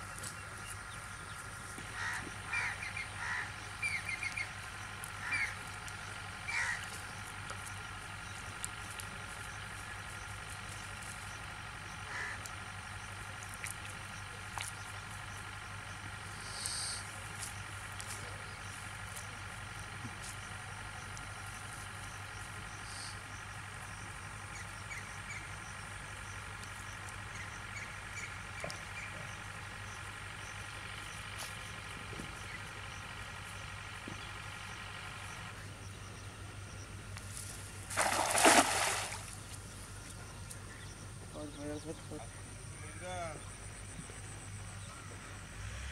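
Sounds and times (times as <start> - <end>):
steady droning hum: 0.0 - 45.9
cast net splashing into water: 37.8 - 39.4.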